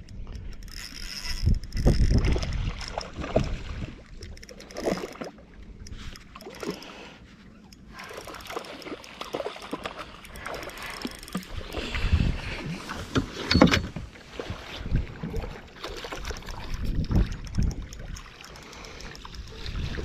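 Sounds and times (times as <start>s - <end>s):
fishing reel winding: 0.0s - 3.2s, 4.2s - 5.2s, 7.7s - 11.8s, 16.0s - 20.0s
fish splashing: 8.0s - 12.0s.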